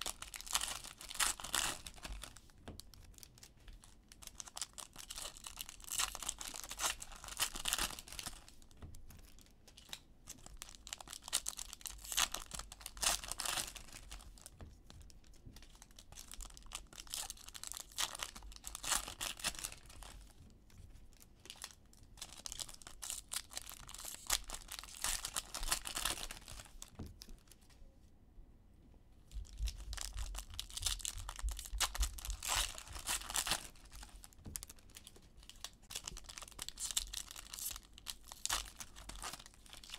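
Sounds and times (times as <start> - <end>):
foil wrappers tearing and crinkling: 0.0 - 2.4, 4.2 - 8.5, 9.8 - 14.5, 15.8 - 20.1, 21.5 - 26.8, 29.7 - 39.9.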